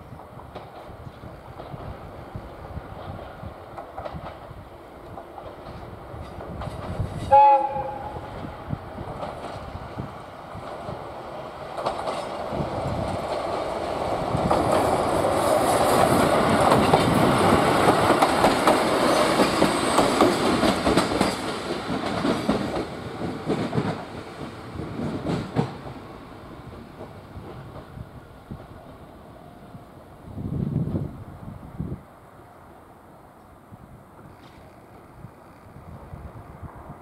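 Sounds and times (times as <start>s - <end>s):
diesel railcar engine: 0.0s - 37.0s
wheels clacking over rail joints: 2.9s - 8.1s, 9.0s - 28.8s.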